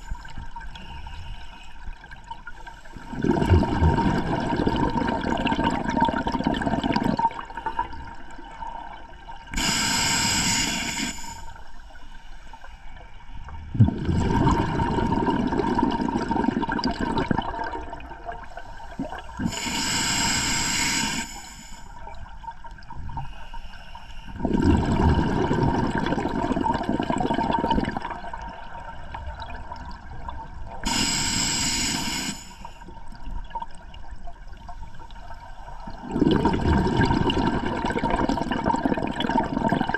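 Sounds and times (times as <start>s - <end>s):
regulator inhale hiss: 0.0s - 1.8s, 9.6s - 12.9s, 18.4s - 22.0s, 23.2s - 24.4s, 30.8s - 32.9s
exhaled air bubbling underwater: 0.0s - 11.9s, 12.9s - 39.9s.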